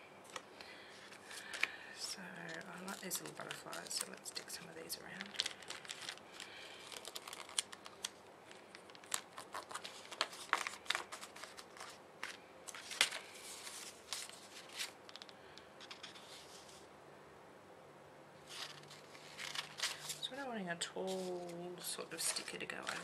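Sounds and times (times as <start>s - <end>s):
paper crackles and taps: 0.3s - 16.2s, 22.2s - 23.0s
stickers peeling off paper: 1.2s - 15.3s.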